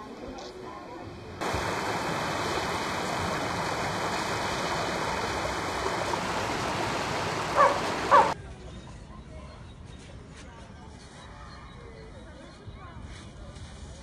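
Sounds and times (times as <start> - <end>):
steady rushing noise: 1.4 - 8.4.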